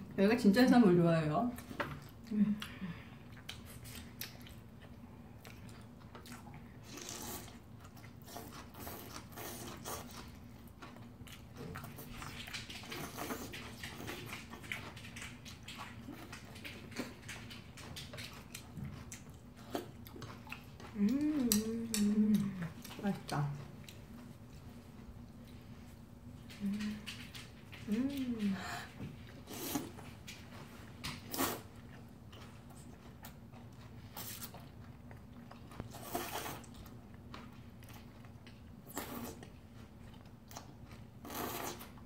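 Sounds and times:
noodles slurped and chewed: 1.6 - 42.0
chopsticks clicking in bowl: 21.4 - 22.2.

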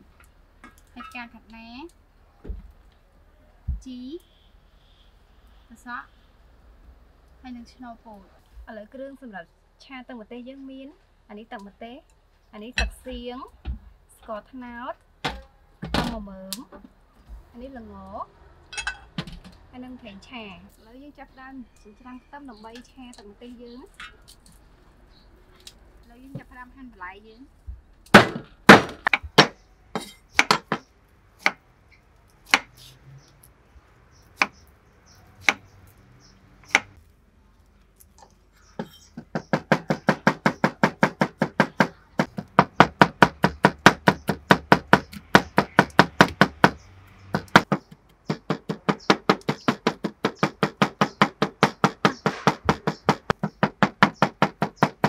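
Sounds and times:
knife chopping on wooden board: 28.2 - 31.6.

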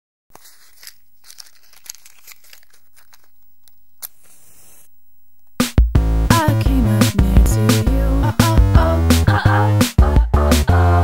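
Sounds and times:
tearing rustle: 0.3 - 4.9
soft crinkling and crackling: 0.3 - 5.7
music with steady beat: 5.4 - 11.0.

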